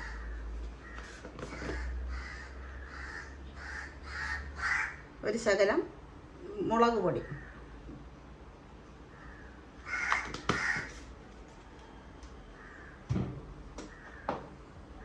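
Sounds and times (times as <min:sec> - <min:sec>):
crows cawing: 0:00.0 - 0:05.1, 0:07.3 - 0:07.7, 0:09.1 - 0:11.1, 0:12.5 - 0:13.1, 0:13.8 - 0:14.4.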